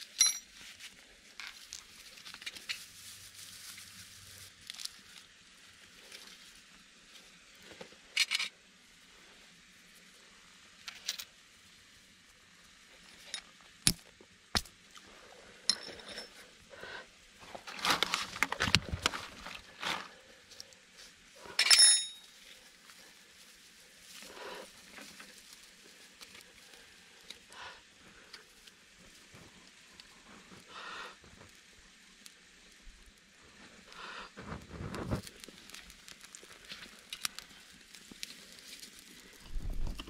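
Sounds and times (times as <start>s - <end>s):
sharp metallic clinks: 0.2s - 0.5s, 21.6s - 22.3s
knocks and rustling of gear: 17.4s - 20.2s.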